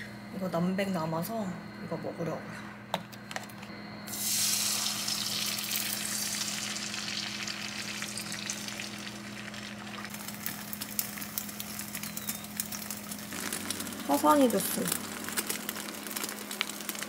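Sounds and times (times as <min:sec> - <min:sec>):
egg sizzling in frying pan: 0:04.1 - 0:17.0
crackles and pops: 0:09.2 - 0:17.0.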